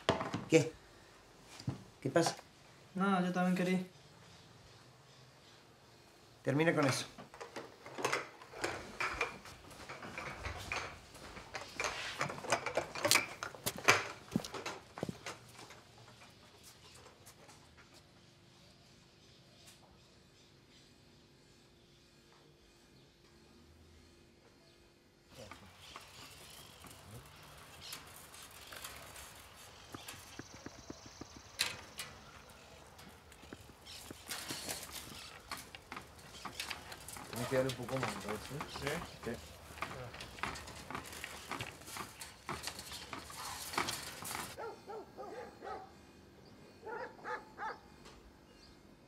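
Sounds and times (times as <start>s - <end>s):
kitchen things clinking and knocking: 0.0s - 0.5s
twigs crackling underfoot: 25.5s - 45.8s.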